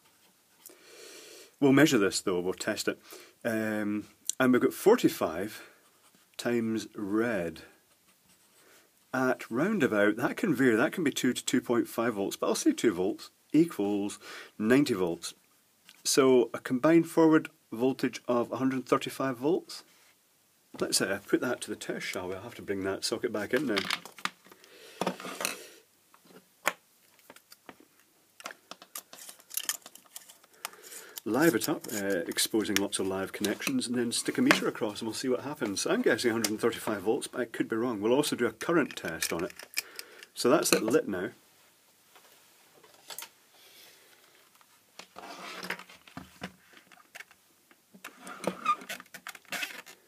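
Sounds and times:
plastic rustling and sliding: 0:28.4 - 0:36.7, 0:44.1 - 0:47.4, 0:48.0 - 0:50.0.

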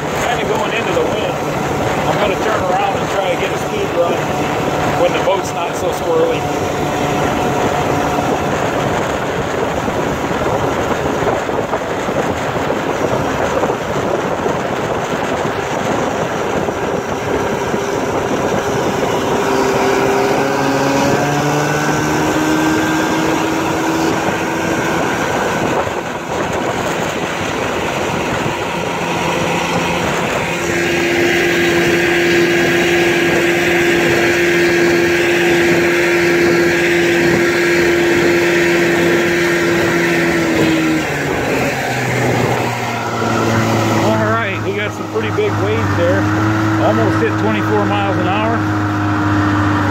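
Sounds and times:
outboard motor running: 0:00.0 - 0:49.9
wind on microphone: 0:00.0 - 0:49.9.

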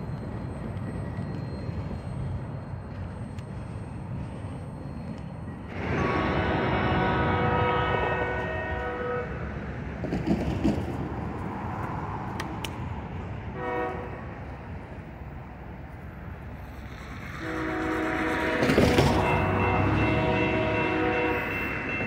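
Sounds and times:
low rumble of train: 0:00.0 - 0:22.0
locomotive air horn blasts: 0:05.7 - 0:09.5, 0:13.6 - 0:14.3, 0:17.4 - 0:22.0.

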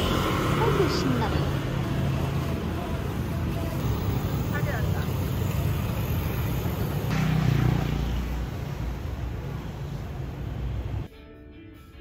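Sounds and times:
music: 0:11.1 - 0:12.0.

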